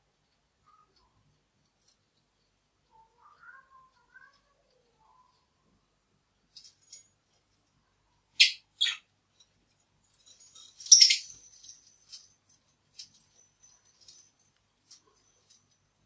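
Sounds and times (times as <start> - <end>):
lovebirds chirping: 8.3 - 9.1, 10.3 - 12.2
toys ticking and clinking: 10.2 - 15.8.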